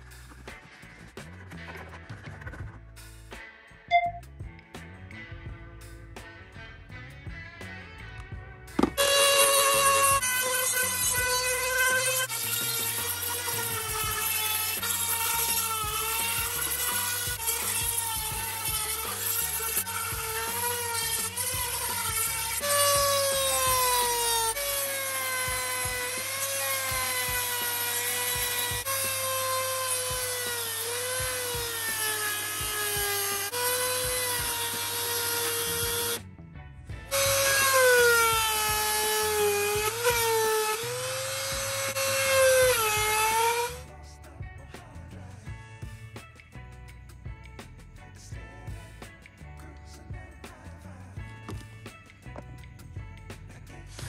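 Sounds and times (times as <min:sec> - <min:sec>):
rotary tool motor whining: 0:08.8 - 0:36.2, 0:37.1 - 0:43.8.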